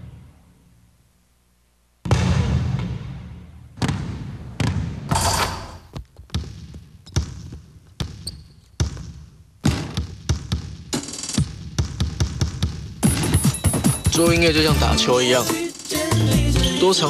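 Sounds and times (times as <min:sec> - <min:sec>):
basketball bouncing: 0:02.0 - 0:14.4.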